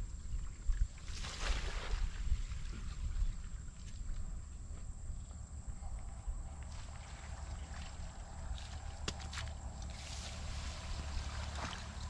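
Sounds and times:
wind rumble on microphone: 0:00.0 - 0:12.0
water sloshing and splashing: 0:00.2 - 0:04.3, 0:06.6 - 0:12.0.

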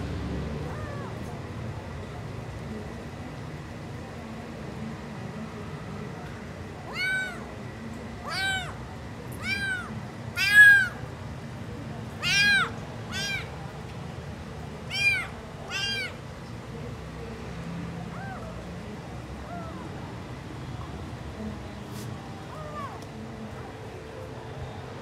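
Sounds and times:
kitten meowing: 0:00.7 - 0:01.2, 0:06.9 - 0:07.4, 0:08.3 - 0:08.8, 0:09.4 - 0:11.0, 0:12.2 - 0:13.5, 0:14.9 - 0:16.2.

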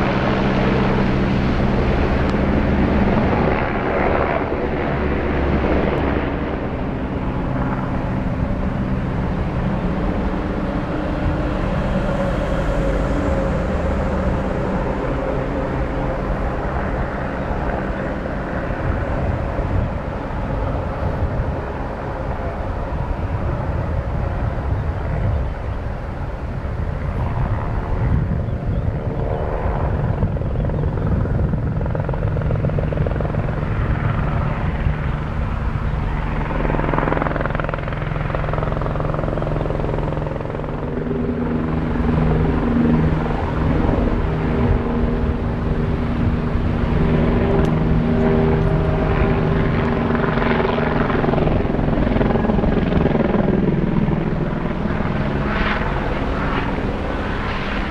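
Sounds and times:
helicopter rotor and turbine: 0:00.0 - 0:57.9.

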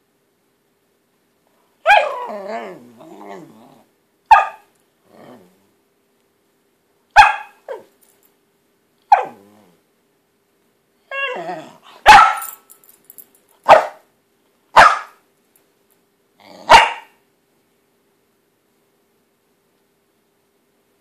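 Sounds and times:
dog growling: 0:02.0 - 0:03.9, 0:05.0 - 0:05.8, 0:09.2 - 0:09.8, 0:11.2 - 0:12.0, 0:16.4 - 0:16.7
dog barking sharply: 0:04.3 - 0:04.7, 0:07.2 - 0:07.6, 0:12.0 - 0:12.6, 0:13.6 - 0:14.1, 0:14.8 - 0:15.2, 0:16.7 - 0:17.2.

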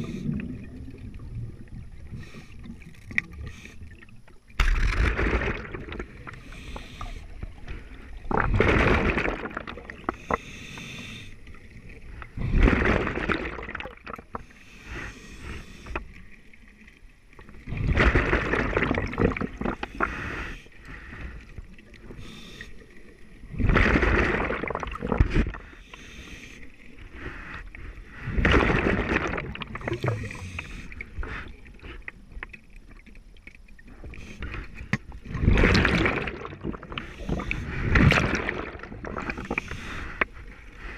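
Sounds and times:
exhaled bubbles rushing: 0:00.0 - 0:06.5, 0:08.1 - 0:10.1, 0:11.6 - 0:14.3, 0:17.6 - 0:19.8, 0:23.4 - 0:25.6, 0:28.2 - 0:30.6, 0:35.2 - 0:39.7
quiet hiss: 0:00.0 - 0:08.4, 0:09.9 - 0:12.7, 0:14.0 - 0:17.8, 0:19.8 - 0:23.6, 0:24.9 - 0:28.4, 0:29.6 - 0:35.4.

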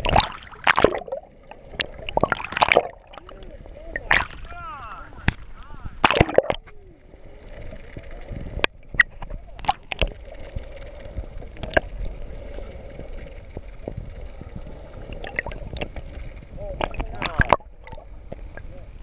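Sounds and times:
muffled gurgling water: 0:00.0 - 0:19.0
steady low hum: 0:00.0 - 0:19.0.

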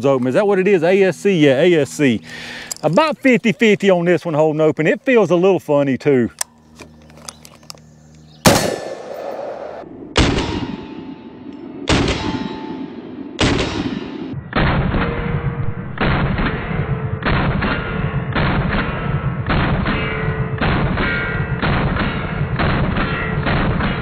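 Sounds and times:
rifle shots with echo: 0:08.4 - 0:24.0.

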